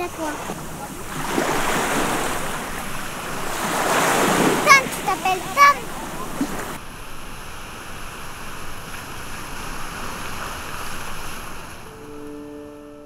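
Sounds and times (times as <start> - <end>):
waves washing onto pebble beach: 0.0 - 12.1
gentle piano notes: 11.7 - 13.0.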